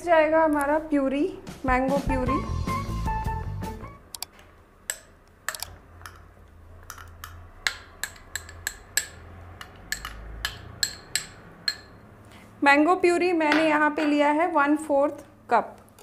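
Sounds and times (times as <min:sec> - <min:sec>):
spoon clinking on glass bowl: 0:06.8 - 0:12.0.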